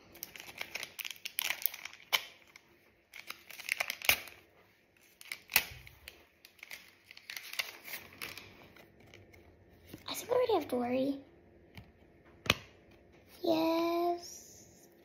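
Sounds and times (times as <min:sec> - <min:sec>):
wrapper crinkling and tearing: 0:00.0 - 0:09.5.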